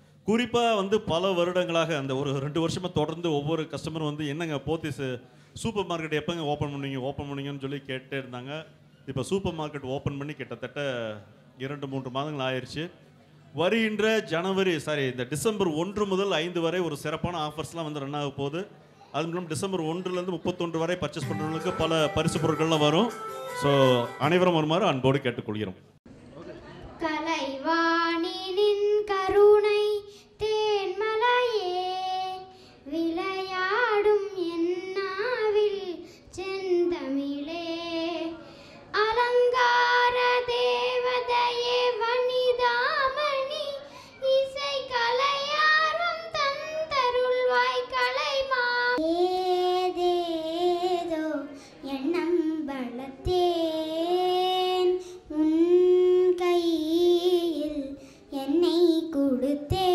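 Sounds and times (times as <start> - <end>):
girl singing unaccompanied: 27.0 - 59.9.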